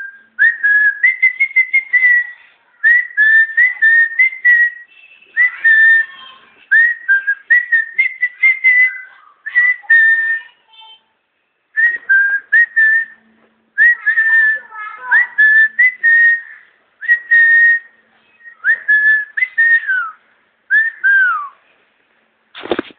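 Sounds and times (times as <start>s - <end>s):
person whistling: 11.8s - 13.2s, 17.0s - 21.6s.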